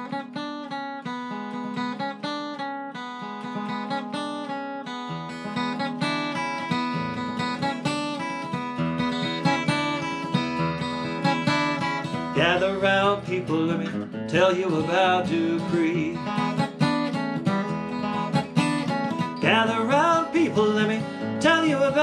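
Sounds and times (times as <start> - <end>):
acoustic guitar picking: 0.0 - 22.0.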